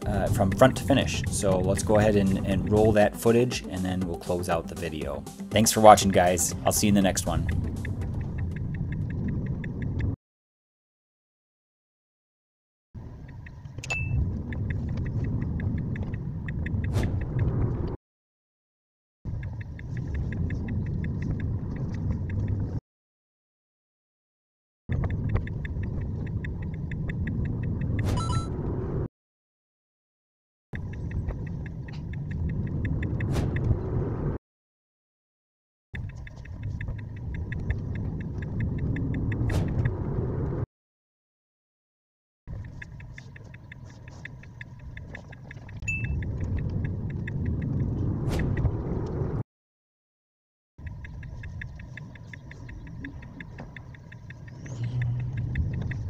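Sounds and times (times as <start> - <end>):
road and tyre rumble: 13.0 - 18.0, 24.9 - 29.1, 30.8 - 34.4, 36.0 - 40.7, 42.5 - 49.4, 50.8 - 56.0
turn signal ticking: 24.9 - 28.0, 30.8 - 33.7, 36.0 - 40.4, 42.5 - 49.2, 50.8 - 56.0
short beep: 28.1 - 28.5, 45.8 - 46.2
car cabin road noise: 50.8 - 56.0
turn signal clicking: 50.8 - 56.0.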